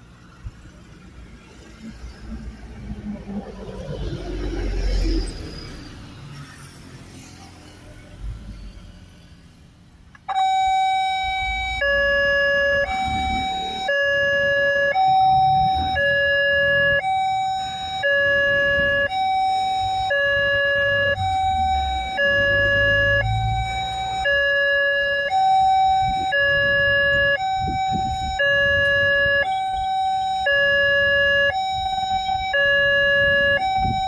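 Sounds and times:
passing road traffic: 0.0s - 34.0s
two-tone electronic warning siren: 10.2s - 34.0s.

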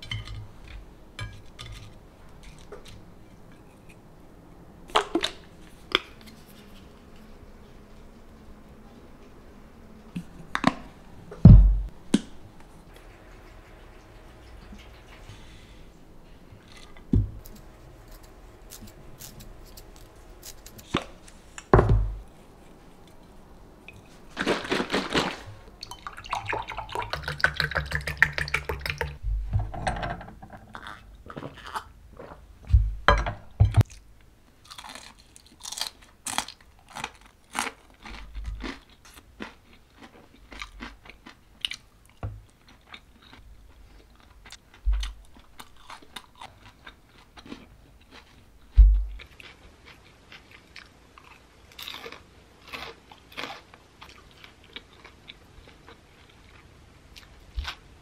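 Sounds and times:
crunching and chewing food: 30.7s - 32.4s, 33.8s - 58.0s.

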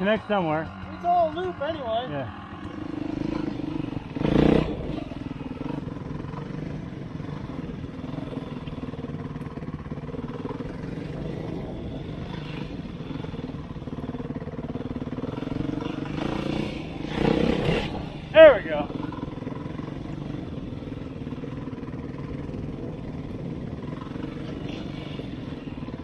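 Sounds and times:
dirt bike engine running: 0.0s - 26.0s.

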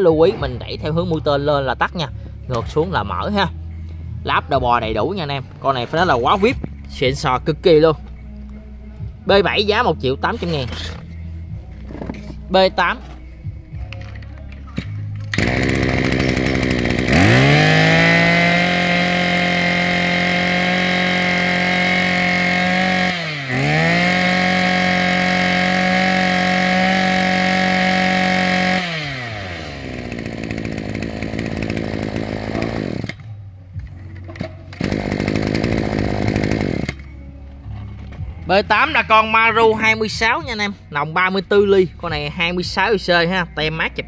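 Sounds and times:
brush-cutter engine revving: 15.3s - 33.3s, 34.7s - 37.1s.

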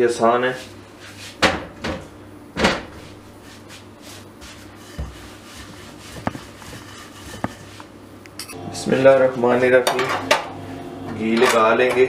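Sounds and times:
rolling pin rolling dough: 3.4s - 8.0s.

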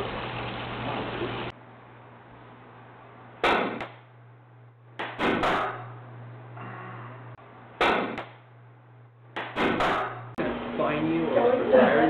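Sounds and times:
steady low hum: 1.5s - 12.0s.

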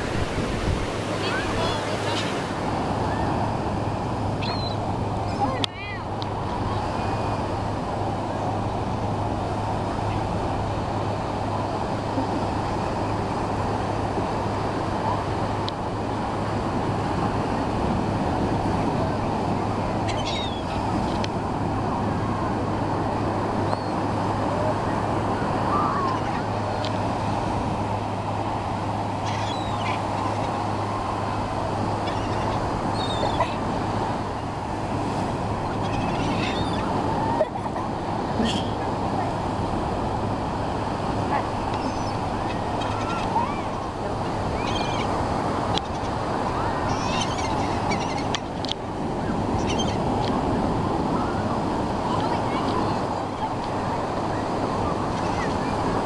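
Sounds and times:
ocean surf: 0.0s - 56.0s
gulls calling: 1.0s - 7.4s, 18.8s - 21.2s, 23.6s - 39.8s, 40.6s - 56.0s.

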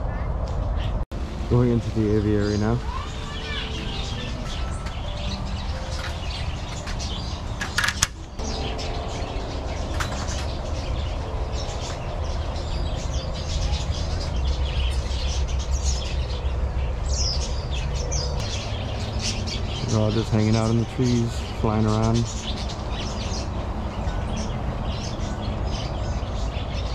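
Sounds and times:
small birds chirping and twittering: 0.0s - 26.9s
metal door clacks: 5.9s - 8.4s, 9.8s - 10.8s.

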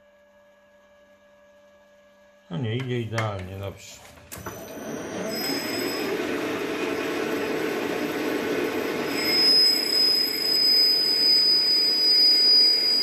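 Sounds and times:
metal lathe running: 4.4s - 13.0s
high-pitched cutting squeal: 4.6s - 6.5s, 7.9s - 13.0s.

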